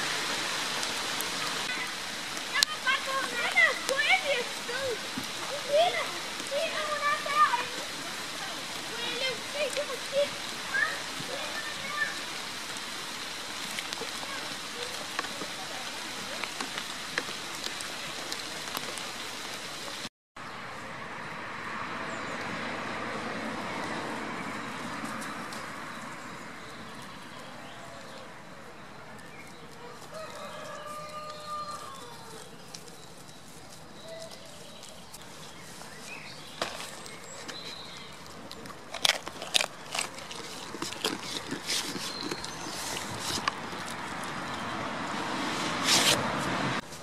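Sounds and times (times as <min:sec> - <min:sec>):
light rain hiss: 0:00.0 - 0:20.1
rooster crowing: 0:29.9 - 0:32.5.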